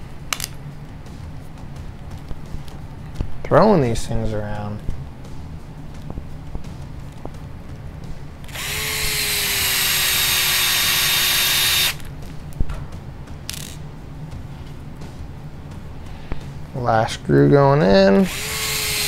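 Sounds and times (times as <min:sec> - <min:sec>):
electric screwdriver running: 0:08.5 - 0:12.1, 0:18.2 - 0:19.0.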